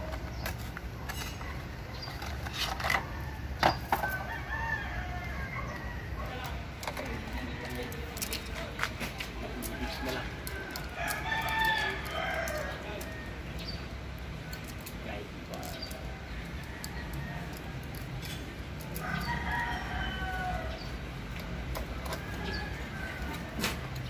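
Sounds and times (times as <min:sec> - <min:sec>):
rooster crowing: 0:03.0 - 0:06.4, 0:09.7 - 0:13.4, 0:18.9 - 0:20.9.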